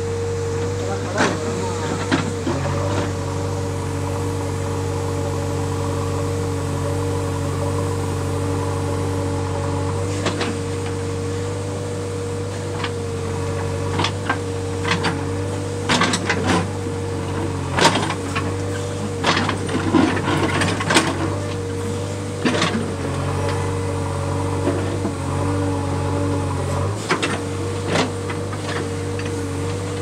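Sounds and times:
digger diesel engine humming: 0.0s - 30.0s.

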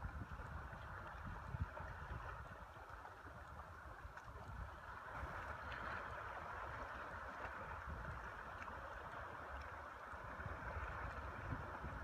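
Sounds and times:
water lapping around canoe hull: 0.0s - 12.0s
wind rumble on microphone: 0.0s - 12.0s.

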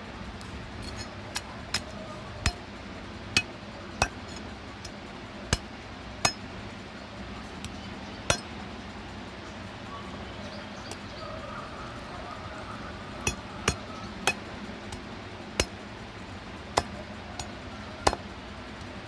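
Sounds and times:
cleaver chopping on wooden block: 16.8s - 18.2s.

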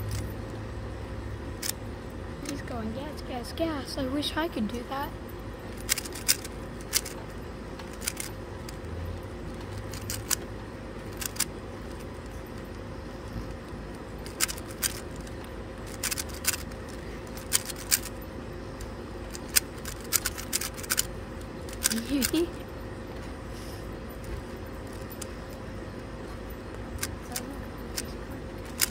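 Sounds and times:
puzzle cube layers clicking: 5.8s - 7.2s, 7.8s - 8.8s, 9.8s - 10.4s, 11.1s - 11.5s, 14.2s - 15.3s, 15.9s - 18.1s, 19.3s - 21.1s, 21.7s - 22.5s, 27.0s - 28.9s.

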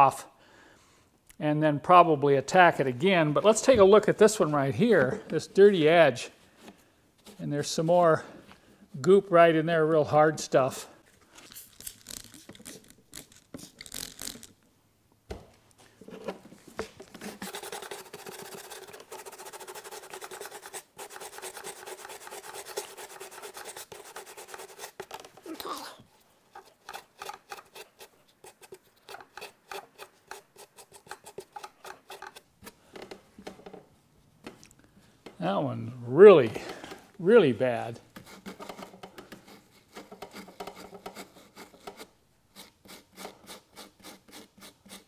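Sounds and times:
stiff brush scrubbing carpet: 17.3s - 25.0s.

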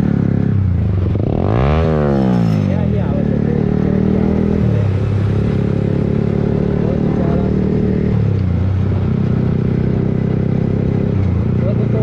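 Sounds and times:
motorcycle engine while riding: 0.0s - 12.0s.

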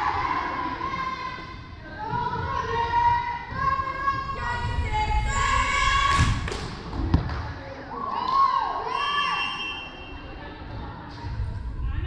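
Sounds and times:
girls chanting in sing-song: 0.0s - 6.5s.

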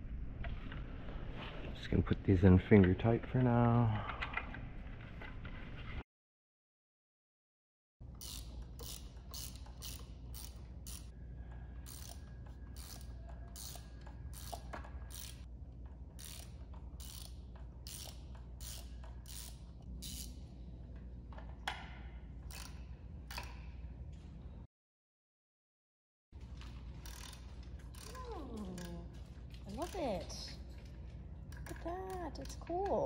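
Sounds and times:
socket ratchet wrench clicking: 8.1s - 11.1s, 11.8s - 15.5s, 16.2s - 20.5s, 22.4s - 23.7s, 27.0s - 28.2s.

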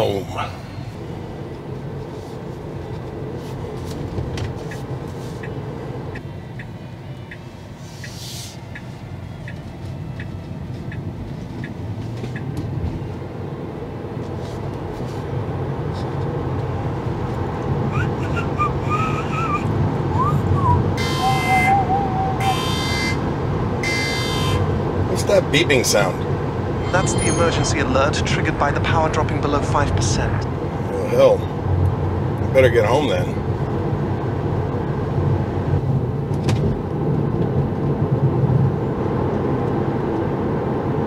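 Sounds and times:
road and tyre noise in car: 0.0s - 41.0s.

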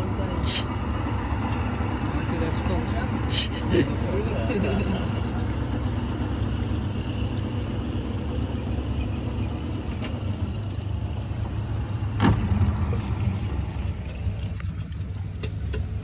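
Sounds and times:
outboard motor humming: 0.0s - 16.0s.

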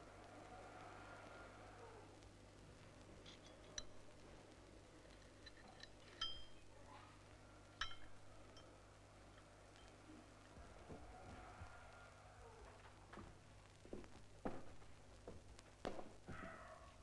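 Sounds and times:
faint low hum: 0.0s - 17.0s
cup clinking against saucer: 5.6s - 6.6s, 7.8s - 8.7s.

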